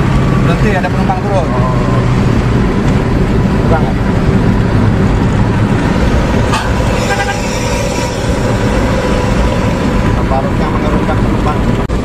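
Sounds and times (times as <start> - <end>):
bus engine and road noise: 0.0 - 12.0
bus horn: 6.4 - 10.0.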